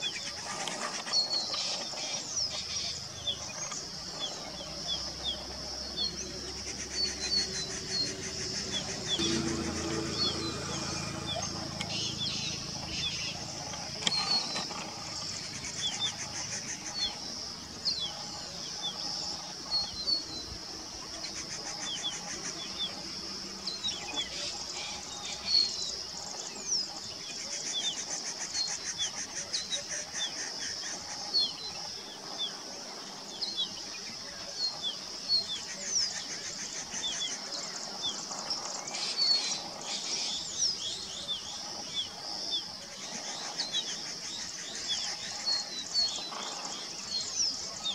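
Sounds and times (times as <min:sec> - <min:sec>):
high-pitched background buzz: 0:01.4 - 0:26.6
bird singing high falling notes: 0:06.8 - 0:14.8.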